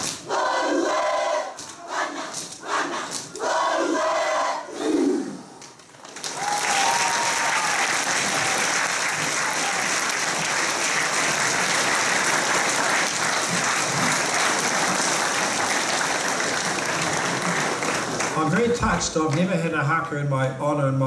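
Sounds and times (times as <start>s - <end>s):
large crowd applauding: 5.6s - 19.4s.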